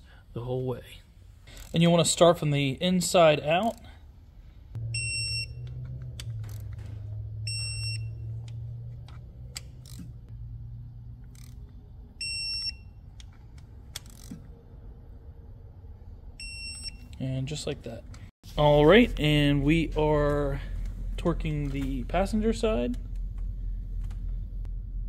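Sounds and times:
ratchet clicks: 8.4 - 10.2, 11.2 - 11.7, 13.9 - 14.4.

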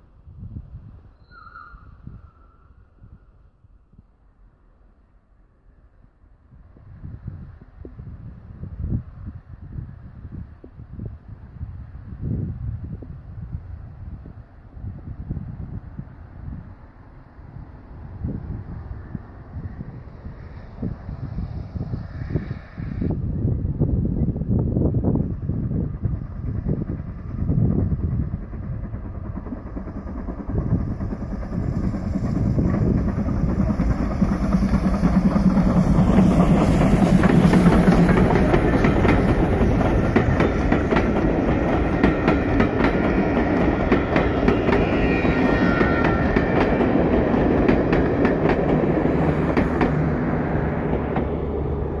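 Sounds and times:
steam locomotive passing: 0.0 - 52.0
clickety-clack of wheels over rail joints: 24.1 - 52.0.

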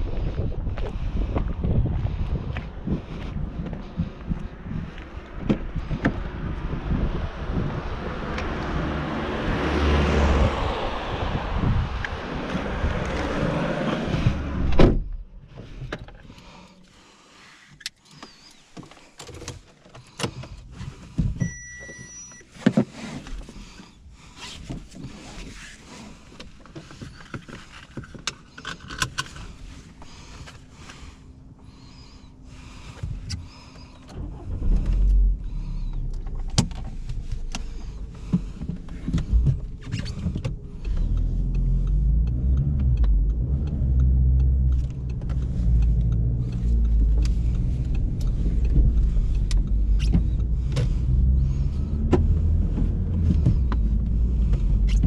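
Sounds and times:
wind noise on microphone: 0.0 - 15.2
car engine starting and idling: 0.0 - 55.0
car door slamming: 14.6 - 15.2
short electronic beep: 21.4 - 22.5.

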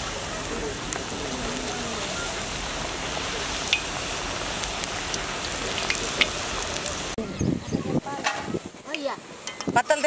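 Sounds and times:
dough deep-frying in oil: 0.0 - 7.2
oil popping and crackling: 0.0 - 7.2.

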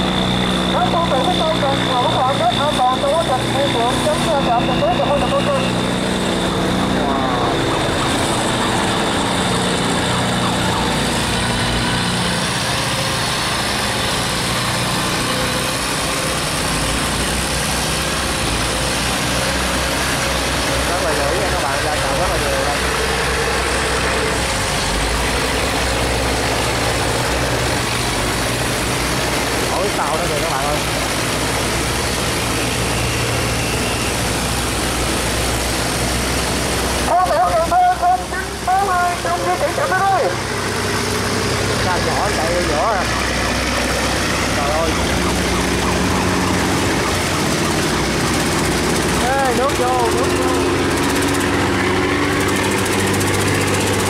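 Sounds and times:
boat diesel engines humming: 0.0 - 54.0
churning water: 0.0 - 54.0.

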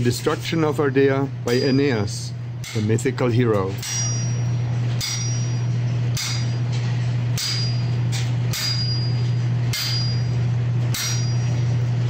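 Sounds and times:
steady low hum: 0.0 - 12.0
hammer striking punch on anvil: 3.8 - 6.7, 7.4 - 11.7.

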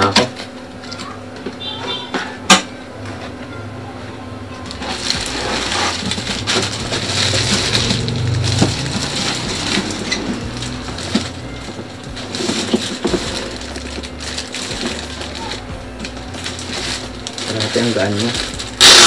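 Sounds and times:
plastic bag crinkling: 4.6 - 19.0.

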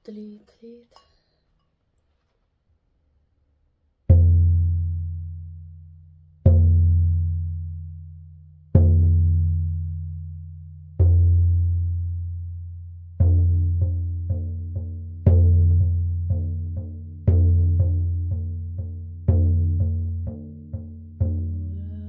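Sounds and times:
frame drum strokes: 13.1 - 22.0.

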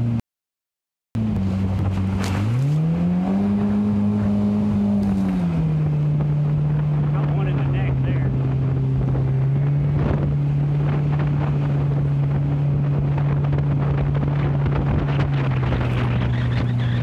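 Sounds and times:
outboard motor running: 1.2 - 17.0
water rushing past hull: 1.2 - 17.0
wind buffeting microphone: 1.2 - 17.0.

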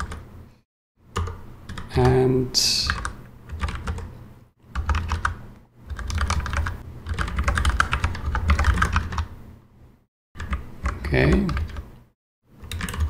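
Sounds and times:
computer keyboard typing: 0.0 - 0.2, 1.2 - 2.2, 2.8 - 4.1, 4.7 - 9.3, 10.4 - 11.9, 12.6 - 13.0.

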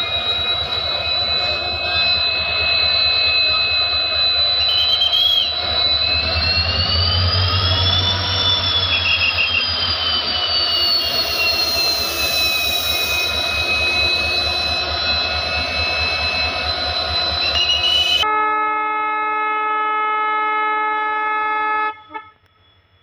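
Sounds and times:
turbocharger whine: 0.0 - 18.2.

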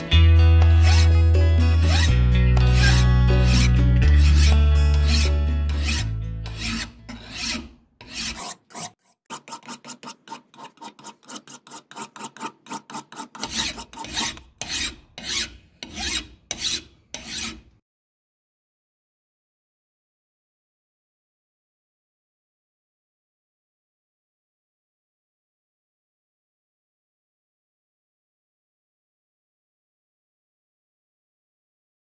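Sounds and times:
hand file scraping metal: 0.6 - 17.7.

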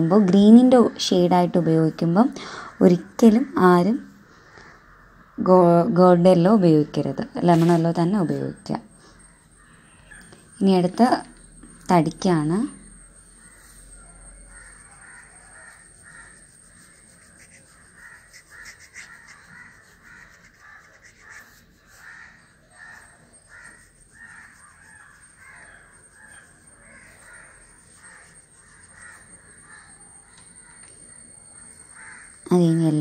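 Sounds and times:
crows cawing: 14.3 - 32.5.

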